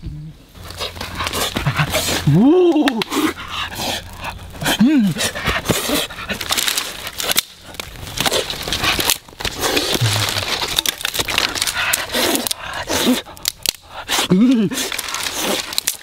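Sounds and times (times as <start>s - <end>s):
dry twigs crackling and snapping: 0.6s - 16.0s.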